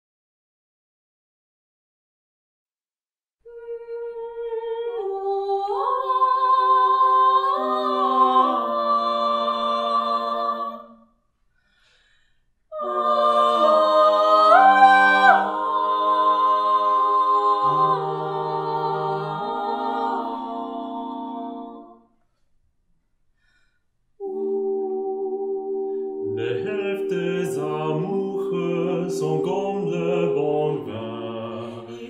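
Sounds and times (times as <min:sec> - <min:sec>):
a cappella ensemble singing: 0:03.5 - 0:11.1, 0:12.7 - 0:22.1, 0:24.2 - 0:32.0
low bass voice singing: 0:24.2 - 0:32.0.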